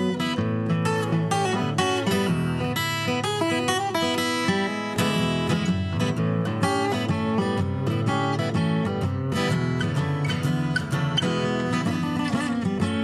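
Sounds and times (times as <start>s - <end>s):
acoustic guitar music: 0.0s - 13.0s.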